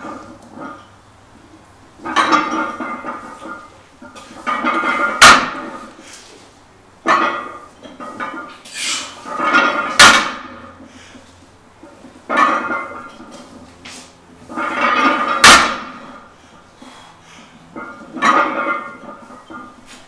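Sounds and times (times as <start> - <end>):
barbell clanking on floor: 2.0 - 5.9, 7.0 - 10.8, 11.8 - 13.6, 14.5 - 16.3, 17.7 - 19.8
barbell plates clinking and rattling: 2.0 - 5.9, 7.0 - 10.8, 11.8 - 13.6, 14.5 - 16.3, 17.7 - 19.8.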